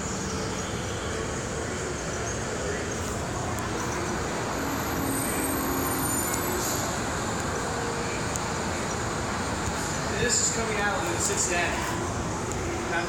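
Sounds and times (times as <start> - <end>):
busy hall background noise: 0.0 - 13.0.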